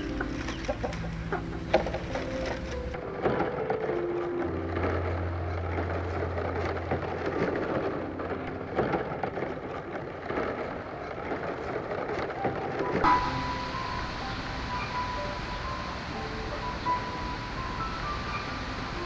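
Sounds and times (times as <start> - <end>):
bamboo strips rustling and clicking: 0.0 - 13.3
low steady hum: 12.7 - 19.0.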